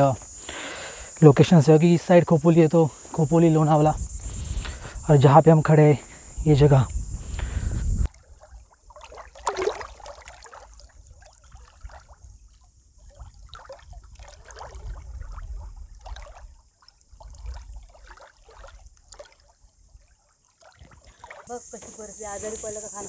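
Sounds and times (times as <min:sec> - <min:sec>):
wind rumble on microphone: 0:03.6 - 0:08.2, 0:10.9 - 0:16.5
small waves lapping on shore: 0:07.3 - 0:23.0
water splash: 0:08.0 - 0:12.3, 0:13.0 - 0:21.9.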